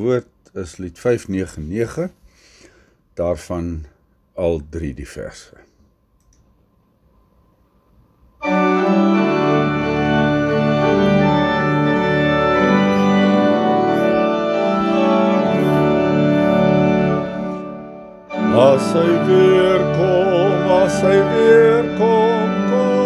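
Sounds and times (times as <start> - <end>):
organ playing held chords: 8.4 - 23.0.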